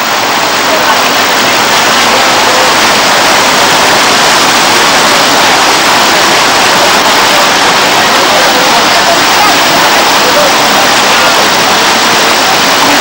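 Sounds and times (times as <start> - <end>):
water pouring over a weir: 0.0 - 13.0.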